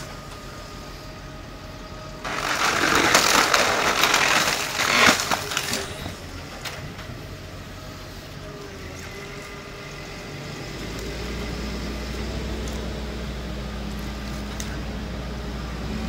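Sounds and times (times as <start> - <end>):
diesel engine hum: 0.0 - 16.0
wood crackling and splintering: 2.2 - 6.9.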